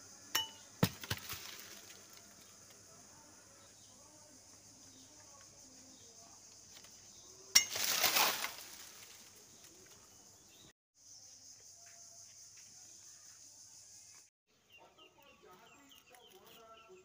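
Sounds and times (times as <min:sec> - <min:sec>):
high insect drone: 0:00.0 - 0:14.3
dry leaves and twigs crackling: 0:00.3 - 0:03.0, 0:04.4 - 0:10.7, 0:15.2 - 0:17.0.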